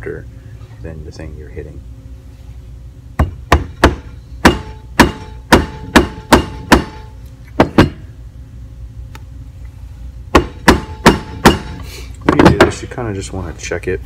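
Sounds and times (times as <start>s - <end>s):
mallet striking metal: 3.2s - 8.0s, 10.3s - 11.8s.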